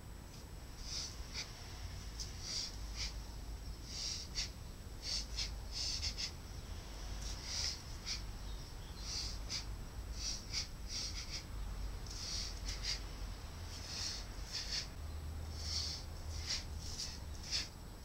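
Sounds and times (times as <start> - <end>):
steady low rumble: 0.0 - 18.0
sharp breath exhalations: 2.4 - 3.2, 3.8 - 6.4, 7.2 - 8.3, 9.0 - 11.5, 12.1 - 13.1, 13.7 - 17.7.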